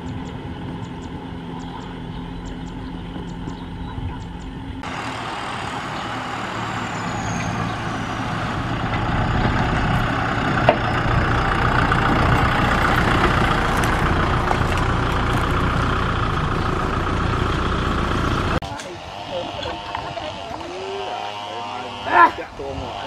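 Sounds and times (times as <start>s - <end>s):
tractor diesel engine running: 0.0s - 23.0s.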